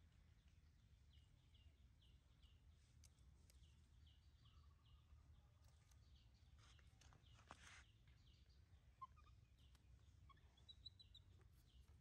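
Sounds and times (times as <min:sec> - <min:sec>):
brief rustle: 0:06.6 - 0:07.9.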